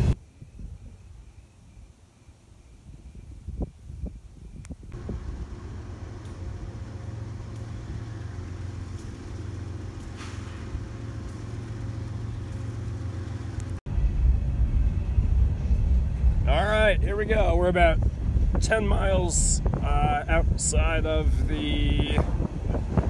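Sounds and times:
diesel locomotive engine humming: 0:00.0 - 0:00.2, 0:04.9 - 0:23.0
heavy low train rumble: 0:00.0 - 0:01.7, 0:04.6 - 0:23.0.

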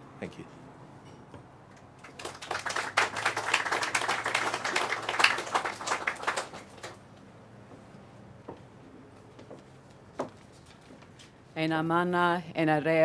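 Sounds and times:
audience applauding: 0:02.0 - 0:07.0.

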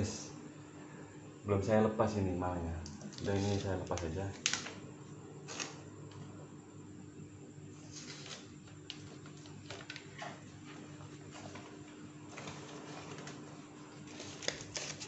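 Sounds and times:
steady low hum: 0:00.0 - 0:15.0
paper rustling: 0:03.0 - 0:04.8, 0:07.8 - 0:15.0.

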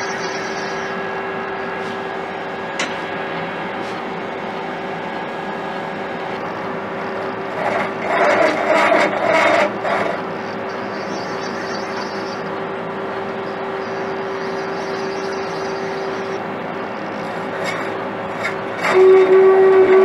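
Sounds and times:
lathe spindle humming: 0:00.0 - 0:20.0
metal scraping on spinning work: 0:07.0 - 0:10.7, 0:17.0 - 0:20.0.

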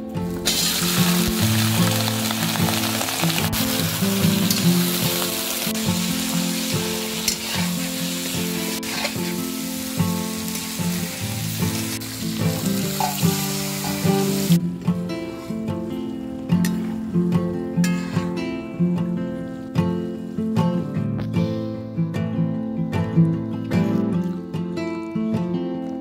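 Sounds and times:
background music: 0:00.0 - 0:26.0
vegetables sizzling in oil: 0:00.3 - 0:14.6
spatula scraping wok: 0:00.5 - 0:14.6, 0:17.8 - 0:18.4.

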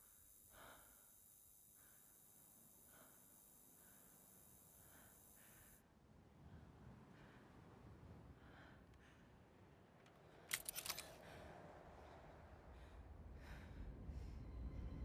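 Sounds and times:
sharp metallic clicks: 0:10.1 - 0:11.2
low rumble: 0:11.2 - 0:15.0.

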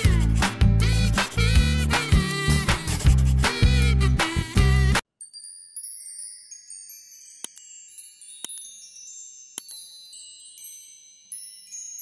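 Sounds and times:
sparkling chime: 0:05.2 - 0:12.0.

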